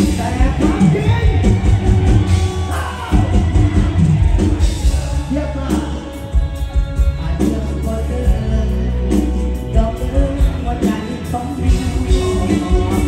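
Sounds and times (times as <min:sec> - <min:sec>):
bass: 0:00.0 - 0:13.0
live band playing: 0:00.0 - 0:13.0
regular drum beat: 0:00.0 - 0:13.0.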